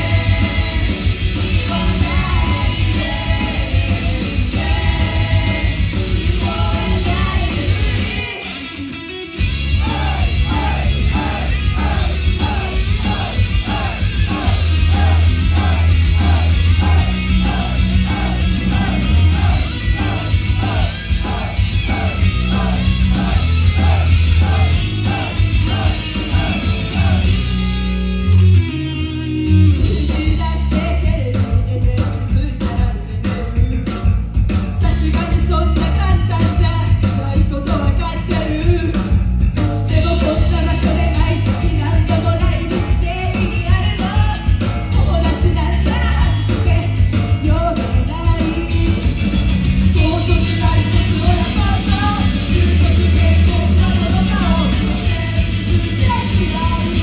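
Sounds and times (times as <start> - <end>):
group singing: 0.0 - 8.4, 9.7 - 27.4
drums: 0.0 - 57.0
loud rock guitar: 0.0 - 57.0.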